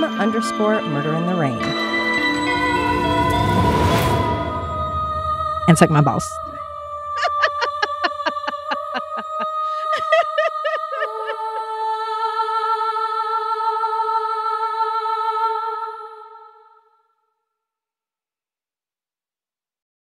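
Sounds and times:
theme music with repeated notes: 0.0s - 9.5s.

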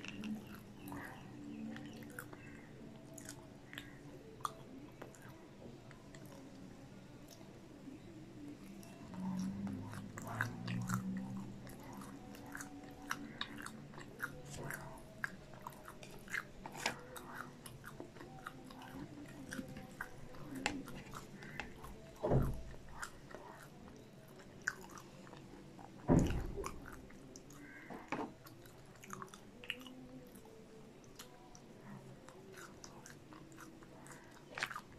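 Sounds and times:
chewing crunchy fried food: 0.0s - 34.9s.

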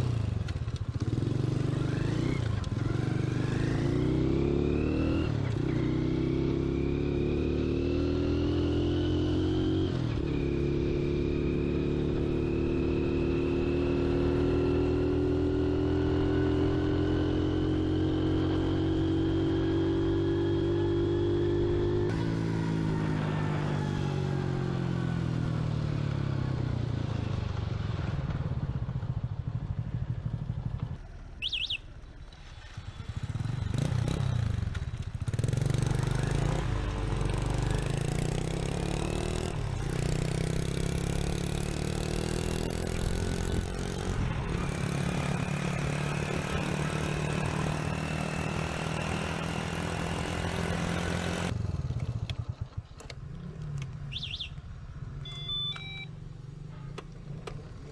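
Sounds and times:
road and wind noise: 0.0s - 57.9s
short electronic beep: 31.4s - 31.9s, 55.2s - 56.3s.

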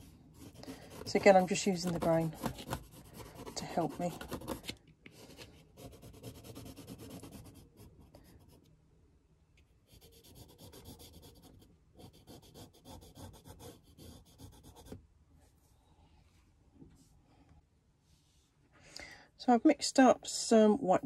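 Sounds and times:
pencil scratching on paper: 0.0s - 8.6s, 9.9s - 15.0s.

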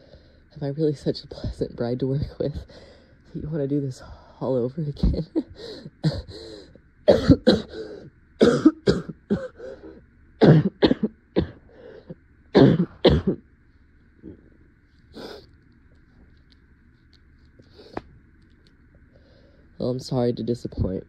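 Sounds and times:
woman coughing: 5.2s - 6.5s, 7.1s - 9.7s, 10.4s - 11.6s, 12.6s - 13.4s.

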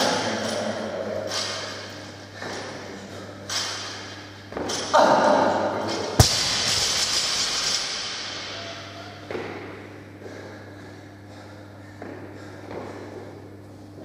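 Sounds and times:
noisy rush: 6.2s - 9.2s
barbell hitting gym floor: 6.2s - 9.6s.

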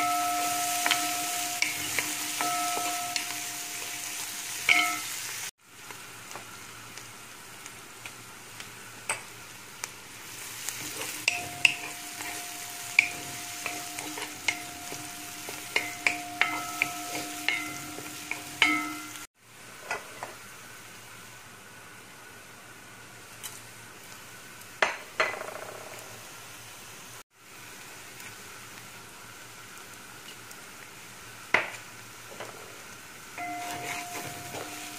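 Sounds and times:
onions sizzling in hot oil: 0.0s - 34.9s
wooden spatula knocking a pot: 10.9s - 19.2s.

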